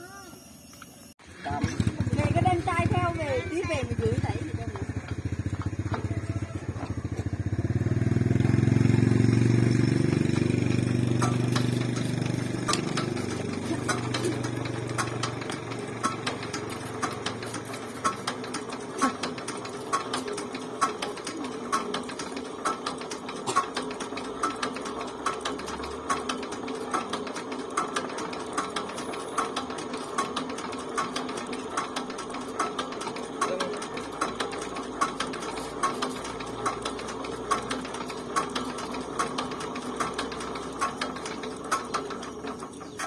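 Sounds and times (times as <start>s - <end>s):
diesel engine idling with clatter: 1.2s - 43.0s
sharp engine knock: 3.9s - 33.4s.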